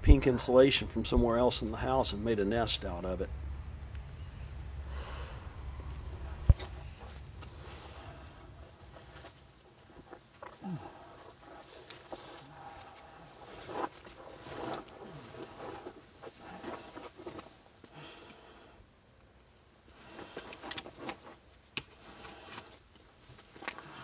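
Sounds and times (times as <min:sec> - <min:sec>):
coverall rustling: 0:04.8 - 0:17.9, 0:19.9 - 0:24.0.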